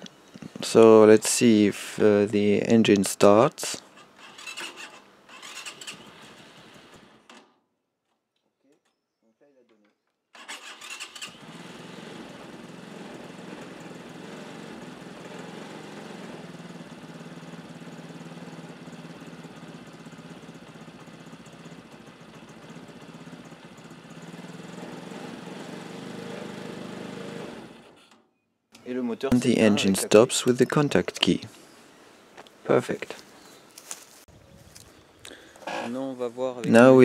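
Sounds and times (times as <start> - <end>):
motorcycle engine starting and running: 3.9 - 7.6, 10.4 - 28.2.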